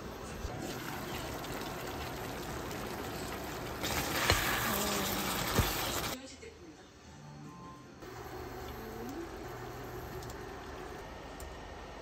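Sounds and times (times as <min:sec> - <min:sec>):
sauce simmering and bubbling: 0:00.5 - 0:06.2.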